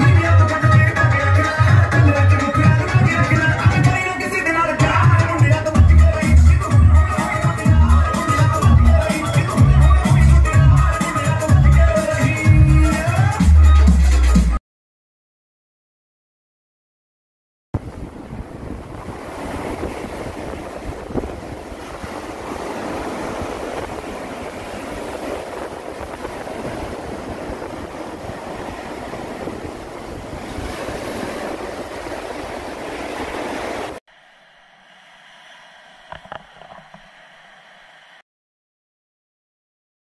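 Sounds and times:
wind buffeting microphone: 0:17.8 - 0:34.0
surf washing onto beach: 0:17.8 - 0:38.2.

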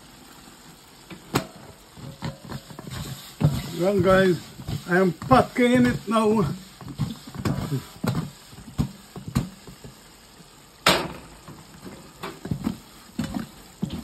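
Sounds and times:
food knocking in shaken pot: 0:02.0 - 0:10.0.

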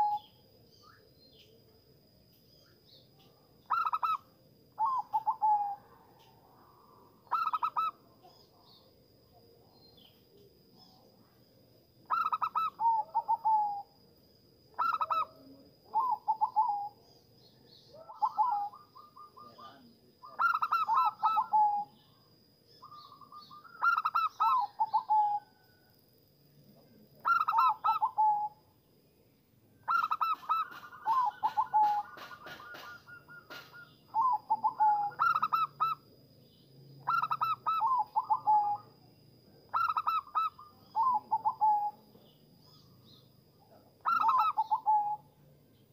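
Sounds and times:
dove cooing: 0:00.0 - 0:00.3, 0:03.7 - 0:08.9, 0:12.1 - 0:14.0, 0:14.8 - 0:17.0, 0:17.8 - 0:22.0, 0:22.8 - 0:25.6, 0:27.2 - 0:28.6, 0:29.9 - 0:36.0, 0:37.0 - 0:38.9, 0:39.7 - 0:45.3.

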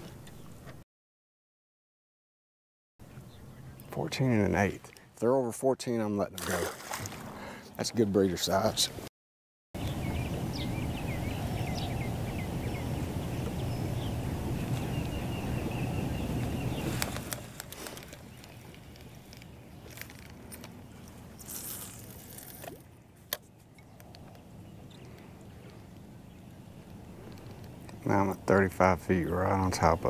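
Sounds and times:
bird chirps: 0:09.8 - 0:20.0, 0:23.5 - 0:28.1
boat low rumble: 0:09.8 - 0:30.0.

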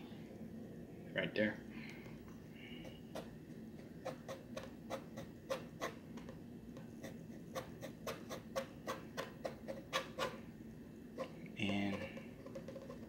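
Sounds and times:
pencil scratching on paper: 0:04.0 - 0:06.0, 0:07.0 - 0:10.4.

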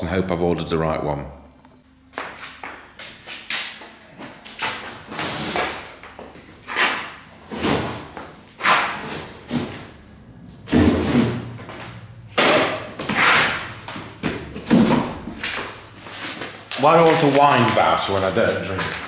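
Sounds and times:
packing tape scraping: 0:06.6 - 0:09.9, 0:13.0 - 0:19.0.

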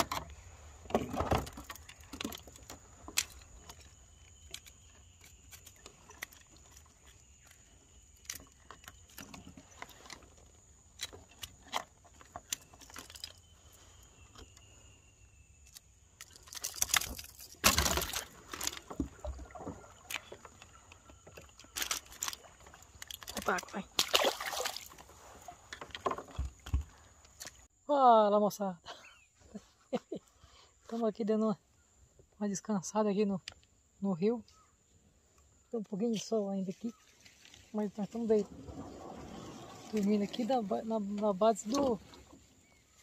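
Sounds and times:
fishing tackle clicking and clinking: 0:11.0 - 0:13.4.

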